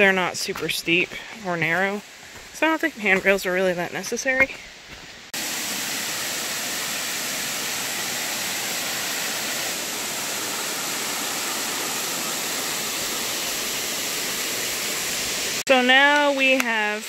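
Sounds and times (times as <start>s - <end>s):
waterfall rushing: 5.4s - 15.7s.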